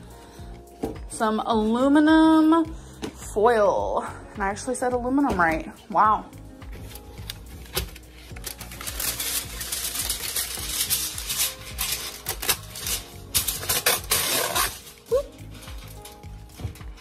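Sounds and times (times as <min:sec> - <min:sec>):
aluminum foil crinkling: 0:06.8 - 0:17.0.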